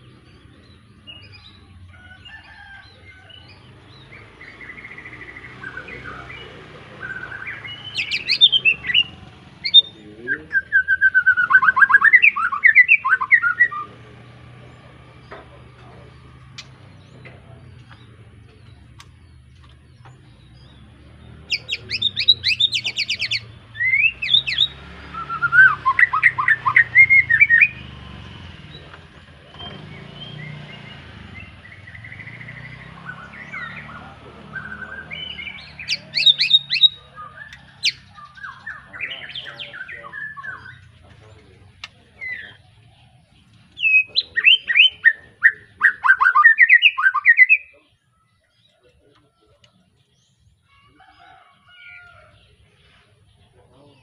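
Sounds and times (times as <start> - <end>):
bird singing whistled phrases: 4.5 - 14.0, 21.5 - 27.9, 31.8 - 40.9, 43.8 - 47.8.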